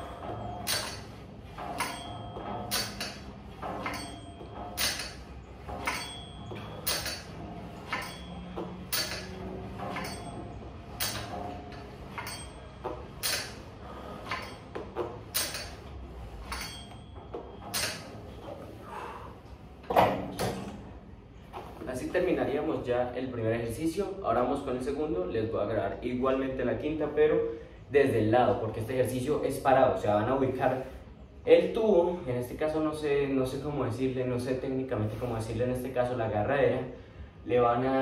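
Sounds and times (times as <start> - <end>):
gym machine metallic clank: 0.0 - 18.8, 19.8 - 20.9.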